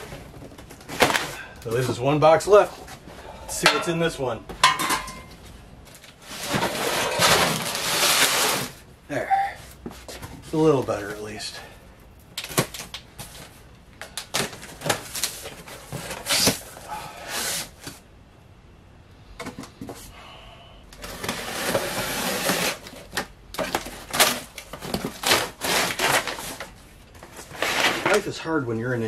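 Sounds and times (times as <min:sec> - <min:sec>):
cardboard box being cut open: 0:06.4 - 0:08.8, 0:21.0 - 0:23.0, 0:25.0 - 0:26.6
cardboard rasping: 0:21.0 - 0:26.7.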